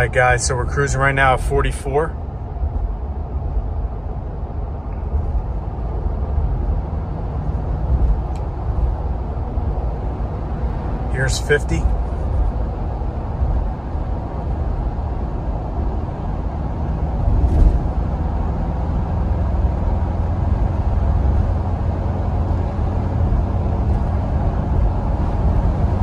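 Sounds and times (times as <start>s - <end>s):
car cabin wind and road noise: 0.0s - 26.0s
brief thump: 17.3s - 17.9s.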